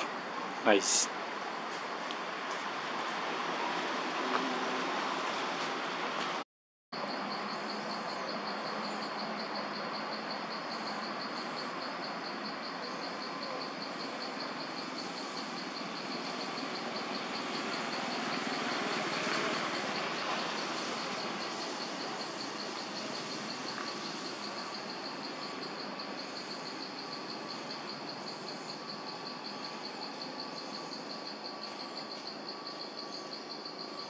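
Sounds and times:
dense insect hiss: 0:00.0 - 0:05.6, 0:07.0 - 0:34.0
pulsing high-pitched insect call: 0:07.0 - 0:34.0.

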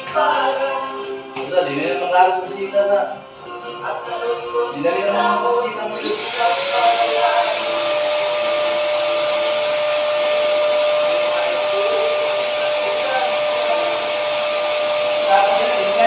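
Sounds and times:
paint sprayer whine and hiss: 0:06.0 - 0:16.0.

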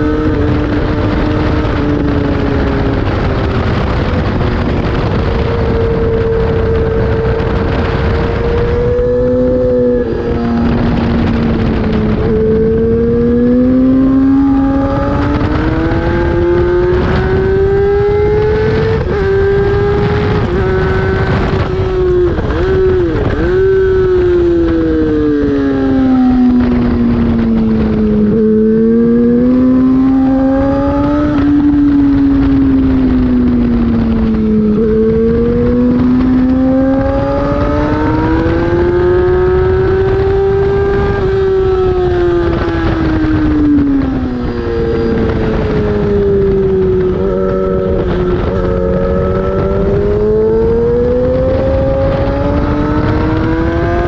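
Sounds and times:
race motorcycle engine revving: 0:00.0 - 0:54.0
wind buffeting microphone: 0:00.0 - 0:54.0.

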